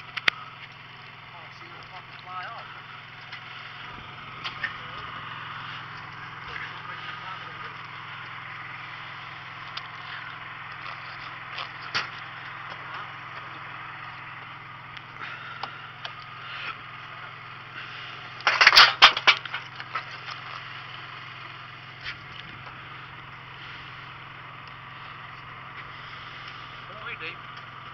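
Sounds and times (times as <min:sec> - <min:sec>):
boat machine hum: 0:00.0 - 0:27.9
gear clattering against deck: 0:18.4 - 0:20.1.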